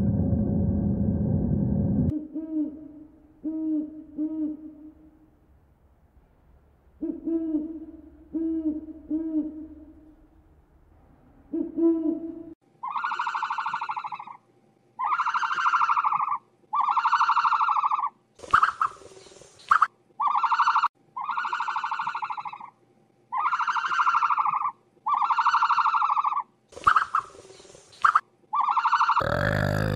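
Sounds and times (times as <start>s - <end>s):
owl hooting: 12.8s - 14.4s
loud buzzy animal call: 29.2s - 29.9s.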